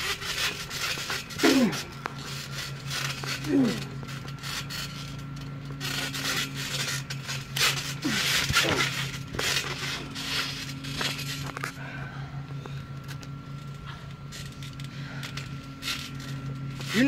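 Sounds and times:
steady low hum: 0:00.0 - 0:17.0
bodies scuffling on trampoline mat: 0:05.7 - 0:11.6.

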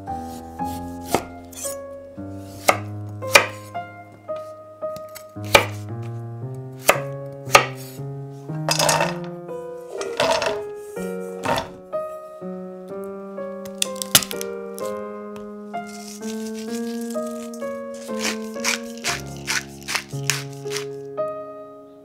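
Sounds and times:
background music: 0:00.0 - 0:22.0
knife chopping on wooden board: 0:00.7 - 0:01.7, 0:02.6 - 0:03.6, 0:05.4 - 0:05.8, 0:06.8 - 0:07.8, 0:15.9 - 0:20.9
vegetables clattering into metal pan: 0:08.7 - 0:10.6, 0:11.4 - 0:11.8, 0:15.9 - 0:20.9.

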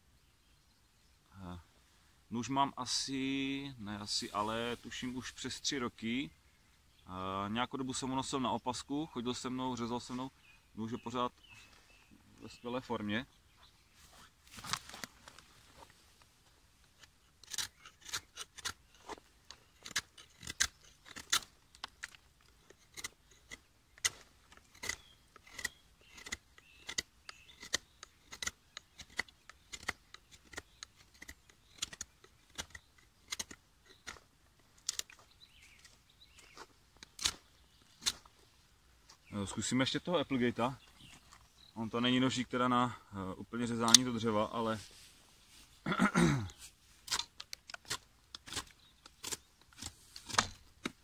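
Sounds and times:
knife shaving wooden stick: 0:16.9 - 0:34.2.

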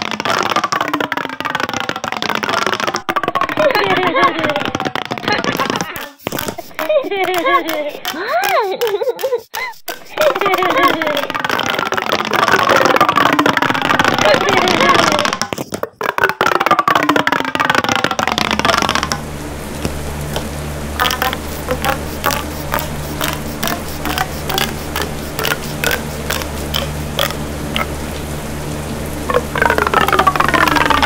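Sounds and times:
regular clicks: 0:00.0 - 0:28.0
low steady drone: 0:19.1 - 0:31.0
siren-like wailing: 0:29.3 - 0:31.0.

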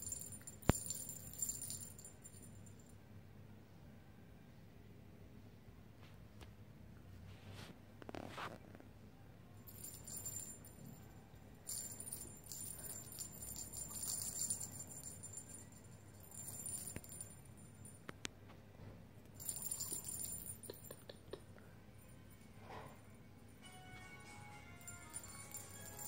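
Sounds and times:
cat toy jingling and rattling: 0:00.0 - 0:02.8, 0:09.7 - 0:11.0, 0:11.7 - 0:18.0, 0:19.4 - 0:21.1, 0:24.8 - 0:26.0.

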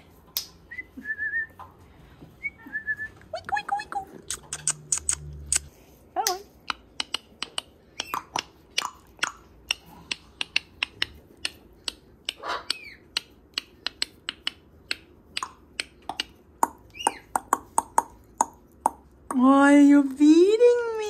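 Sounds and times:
sharp clicks: 0:04.2 - 0:16.4.

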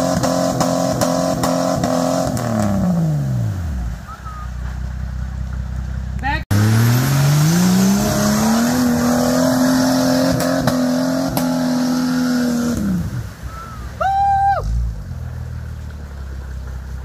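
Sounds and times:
engine revving hard: 0:06.5 - 0:13.1.

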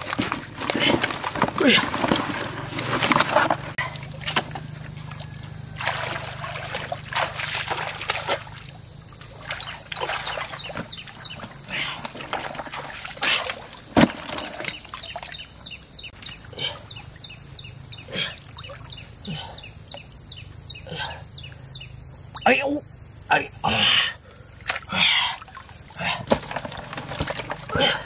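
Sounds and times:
muddy water splashing: 0:00.0 - 0:20.0, 0:23.7 - 0:28.0
low steady hum: 0:00.0 - 0:28.0.

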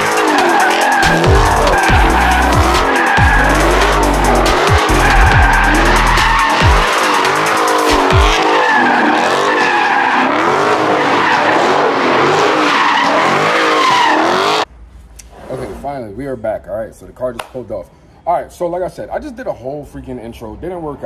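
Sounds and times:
music with deep sliding bass: 0:00.0 - 0:08.6
tyres squealing: 0:00.0 - 0:14.6
car engine revving: 0:00.0 - 0:14.7.

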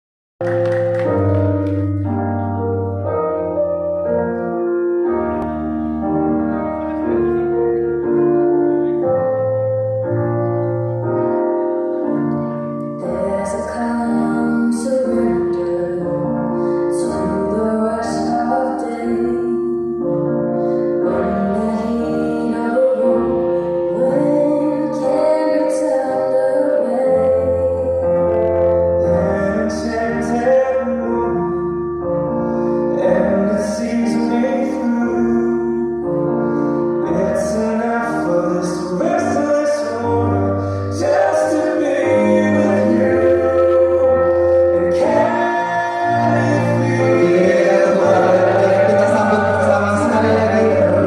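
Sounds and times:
held piano chords: 0:00.4 - 0:51.0
person singing: 0:11.3 - 0:31.6, 0:32.9 - 0:51.0.

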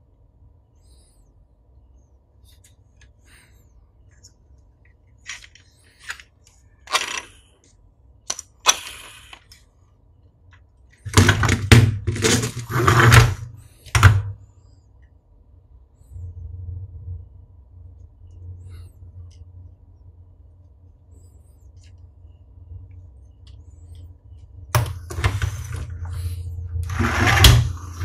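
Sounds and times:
plastic toy parts clicking: 0:05.2 - 0:07.4, 0:08.2 - 0:09.6.

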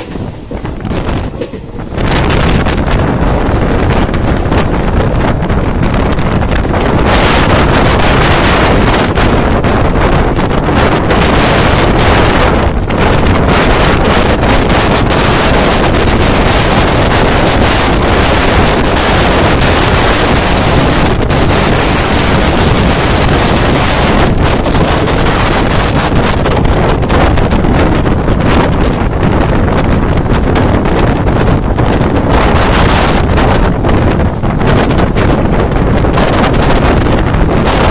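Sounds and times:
train running noise: 0:00.0 - 0:37.9
wind blasting across microphone: 0:00.0 - 0:37.9.

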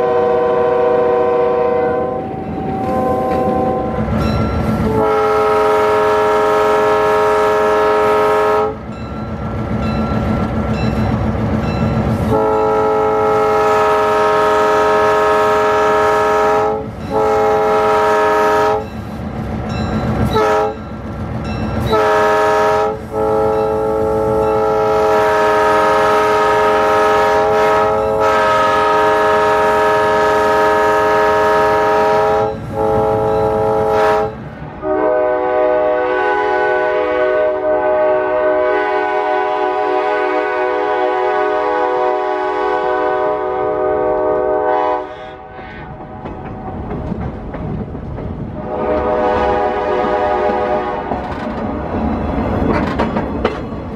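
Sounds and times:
locomotive air horn blasts: 0:00.0 - 0:04.1, 0:04.8 - 0:08.8, 0:12.2 - 0:18.9, 0:20.3 - 0:20.8, 0:21.8 - 0:45.9, 0:48.6 - 0:51.2
locomotive engine rumbling: 0:00.0 - 0:40.0, 0:40.8 - 0:53.9.

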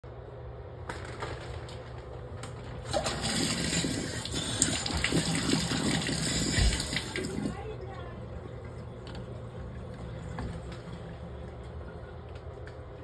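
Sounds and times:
water running into bathtub: 0:02.8 - 0:07.8.

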